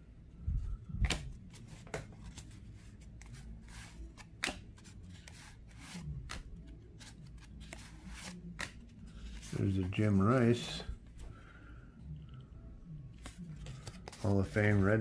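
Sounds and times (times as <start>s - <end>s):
cards snapping: 1.0s - 2.5s, 3.1s - 9.5s.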